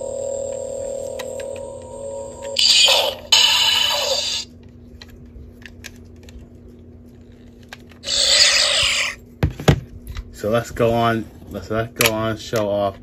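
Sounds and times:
electronic toy sound effects: 0:02.4 - 0:04.5, 0:08.0 - 0:09.2.

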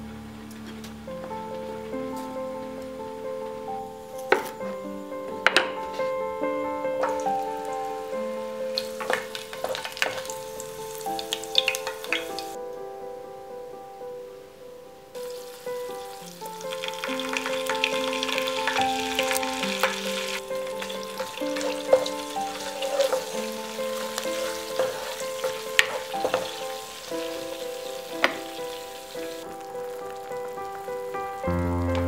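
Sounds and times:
soft piano music: 0:00.0 - 0:32.0
food sizzling in hot oil: 0:07.0 - 0:12.6, 0:15.2 - 0:32.0.

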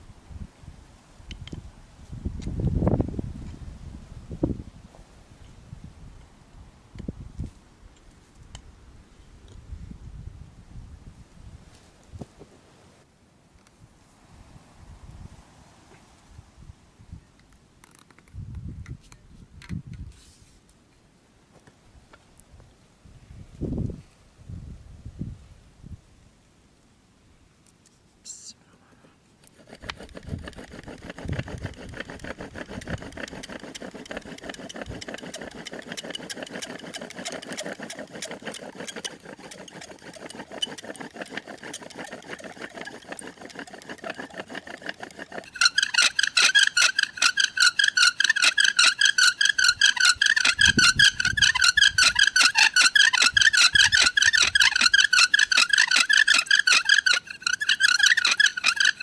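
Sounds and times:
wooden spindle rasping: 0:29.4 - 0:59.0
high wavering squeal: 0:45.4 - 0:59.0.

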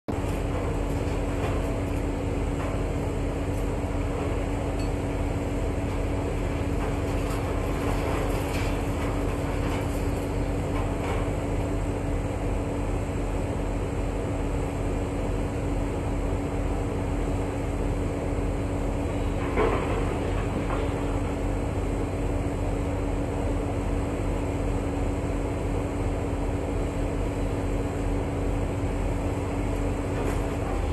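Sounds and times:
diesel construction machinery droning: 0:00.1 - 0:30.9.

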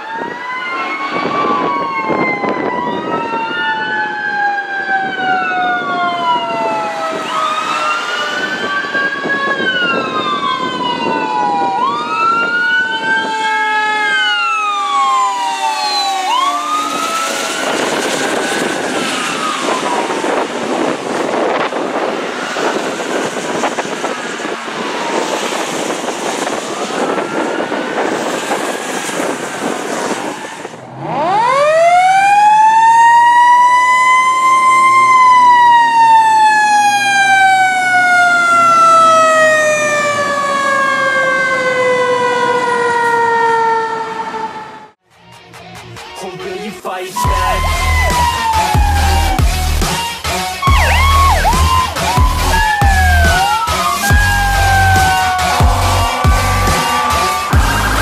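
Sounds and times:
fire engine siren wailing: 0:00.0 - 0:45.0, 0:47.2 - 0:58.0
truck engine and road noise: 0:00.0 - 0:58.0.

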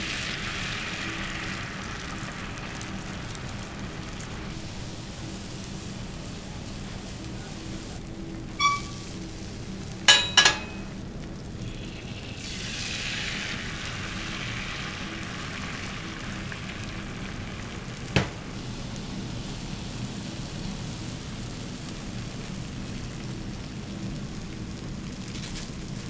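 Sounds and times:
food frying on griddle: 0:00.0 - 0:26.0
ringing metal clinks: 0:10.1 - 0:11.0.

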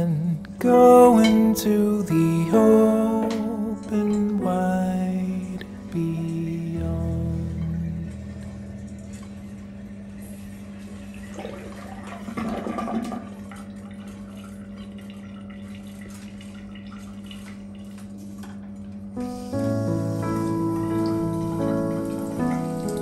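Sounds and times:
steady low hum: 0:00.0 - 0:23.0
water running and splashing: 0:10.7 - 0:23.0.

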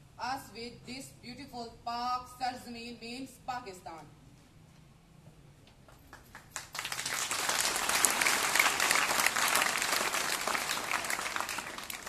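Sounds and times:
crowd applauding: 0:06.1 - 0:12.0.

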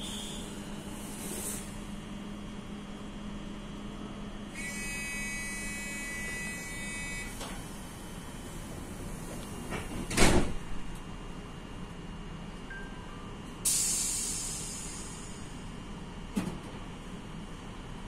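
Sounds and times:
train low hum: 0:00.0 - 0:18.0
train doors thumping shut: 0:08.8 - 0:11.0, 0:16.3 - 0:16.9.

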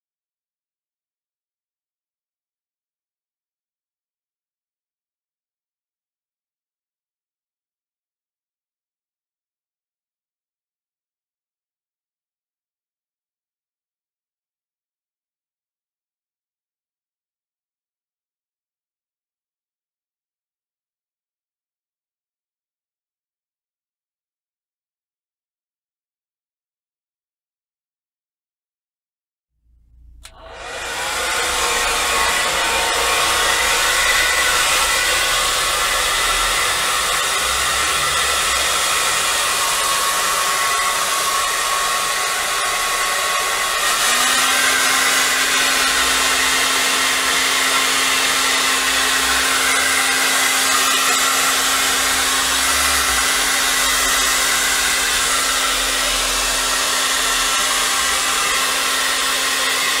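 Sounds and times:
hair dryer blowing: 0:29.9 - 1:00.0.

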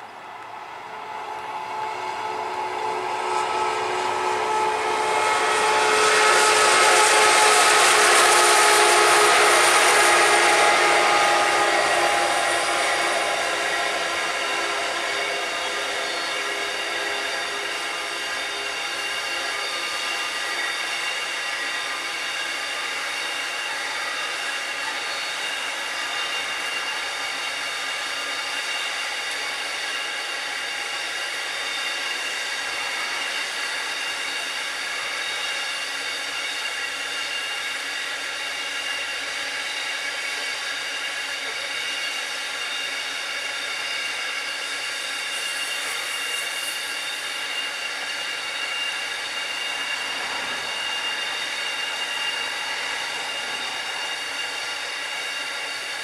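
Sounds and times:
train wagons rumbling on rails: 0:00.0 - 0:35.6
high-pitched ringing tones: 0:00.9 - 0:56.0.

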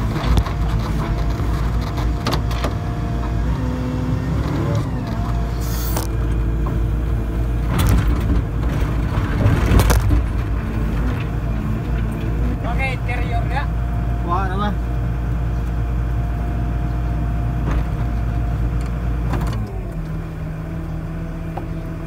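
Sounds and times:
excavator diesel engine: 0:00.0 - 0:22.0
hydraulic whine shifting pitch: 0:02.7 - 0:07.4
bucket knocks and scrapes: 0:07.7 - 0:11.3.

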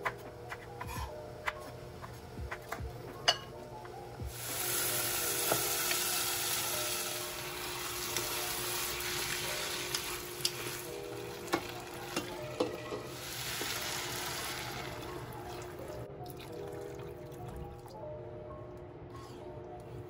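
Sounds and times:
beans sizzling in hot oil: 0:04.3 - 0:15.0
water pouring: 0:13.2 - 0:18.0.

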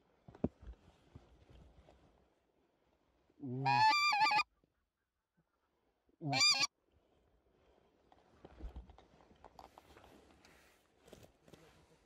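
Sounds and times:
goose call honking: 0:03.5 - 0:04.5, 0:06.2 - 0:06.7.

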